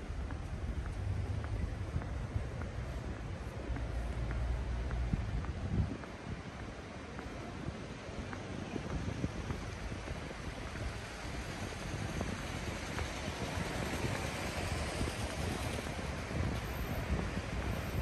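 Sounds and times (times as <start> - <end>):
hiss of passing vehicles: 10.5 - 18.0.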